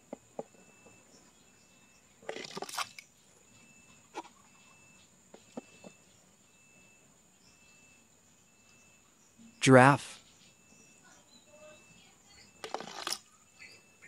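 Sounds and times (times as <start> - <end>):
faint high insect hum: 0.0 - 14.0
toy scraping and splashing into water: 2.2 - 3.0.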